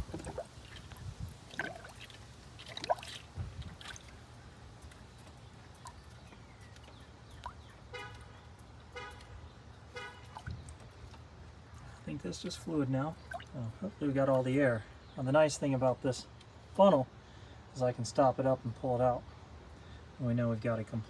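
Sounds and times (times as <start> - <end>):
car horn toots: 7.9 - 8.3, 8.9 - 10.4.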